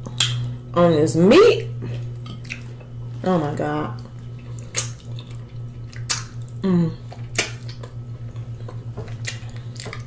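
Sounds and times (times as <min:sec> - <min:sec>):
steady low hum: 0:00.0 - 0:10.0
lip smacks and sucking clicks: 0:04.6 - 0:08.0
falling voice hum: 0:06.6 - 0:07.2.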